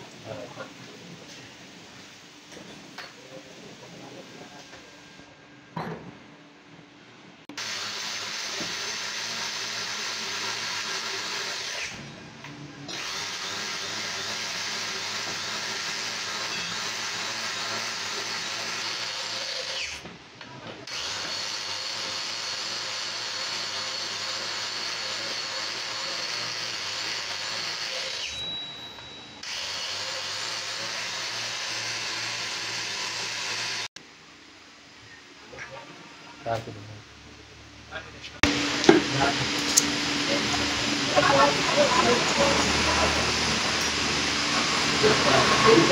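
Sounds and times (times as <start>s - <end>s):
angle grinder whining and grinding: 7.5s - 20.1s, 20.8s - 34.0s, 38.4s - 45.9s.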